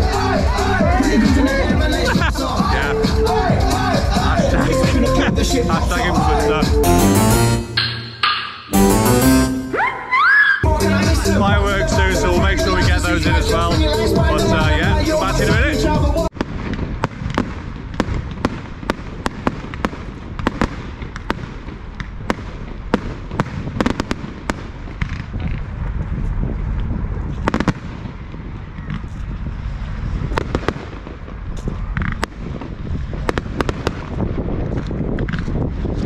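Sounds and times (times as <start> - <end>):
fireworks bangs and crackles: 15.6 - 36.0.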